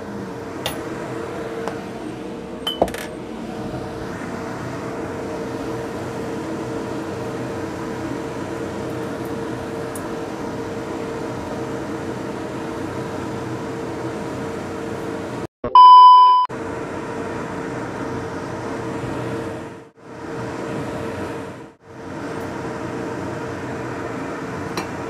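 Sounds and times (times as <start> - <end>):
kitchen hum and hiss: 0.0 - 15.5, 16.6 - 25.0
electronic beep: 15.6 - 16.5
noodles stir-fried in a wok: 16.6 - 25.0.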